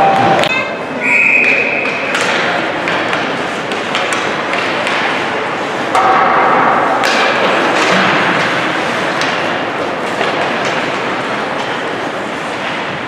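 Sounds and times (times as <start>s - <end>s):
hockey sticks and puck knocking: 1.4s - 11.8s.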